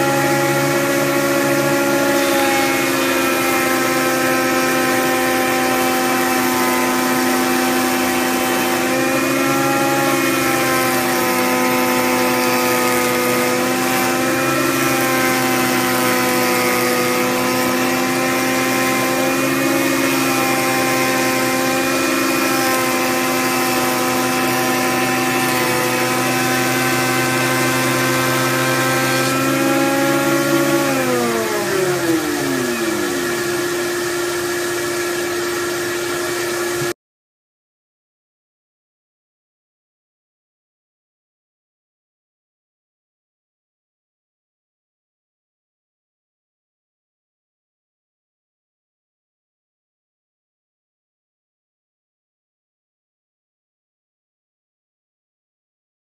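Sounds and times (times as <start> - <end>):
jointer motor whine: 0.0 - 37.0.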